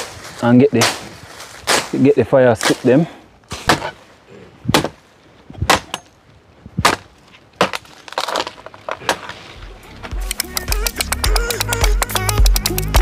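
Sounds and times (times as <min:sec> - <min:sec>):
wooden sticks snapping: 0:00.8 - 0:03.8, 0:10.0 - 0:13.0.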